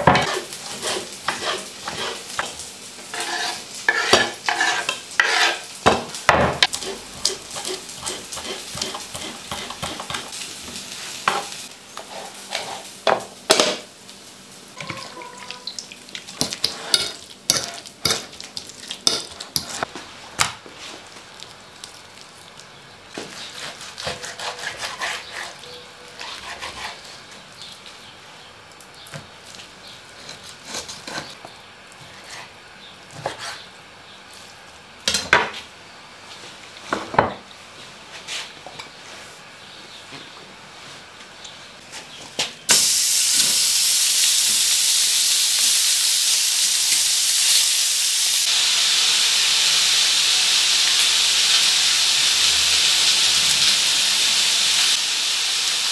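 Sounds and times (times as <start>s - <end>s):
steady hiss: 42.7s - 55.9s.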